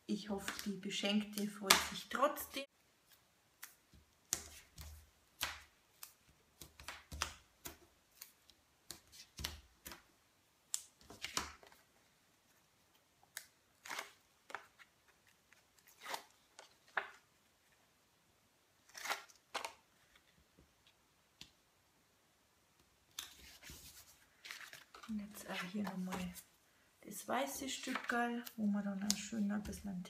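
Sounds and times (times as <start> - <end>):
cardstock rustling and tapping: 27.8 - 30.0.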